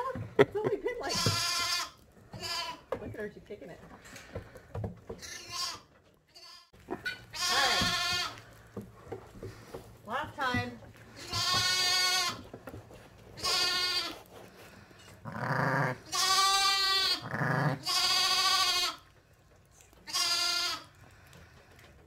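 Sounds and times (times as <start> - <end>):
sheep bleating: 5.3 - 8.4, 15.2 - 19.0, 20.0 - 20.9.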